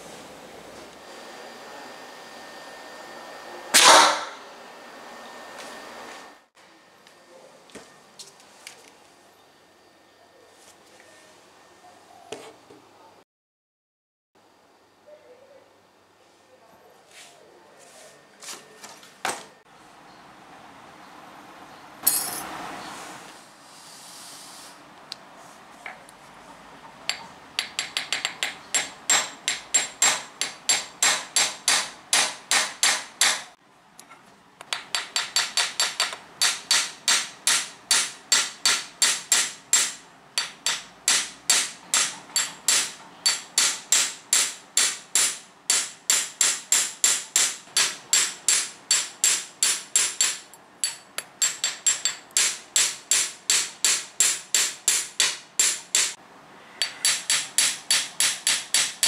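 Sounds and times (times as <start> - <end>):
hammer beating wire on anvil: 27.1 - 33.6, 34.7 - 56.2, 56.8 - 59.0.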